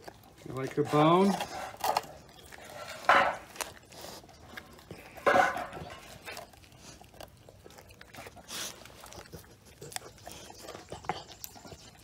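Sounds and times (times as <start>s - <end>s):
dog teeth crunching bone: 0.0s - 12.0s
teeth clicking: 3.4s - 12.0s.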